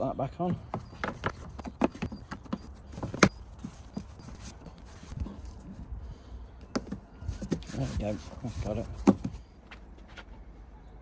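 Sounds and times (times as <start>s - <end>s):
handling plastic parts: 0.6s - 5.6s.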